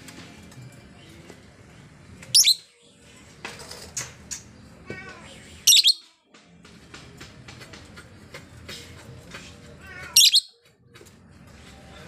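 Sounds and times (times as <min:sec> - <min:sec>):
lovebird chirping: 0:02.3 - 0:02.8, 0:05.6 - 0:06.1, 0:10.2 - 0:10.5.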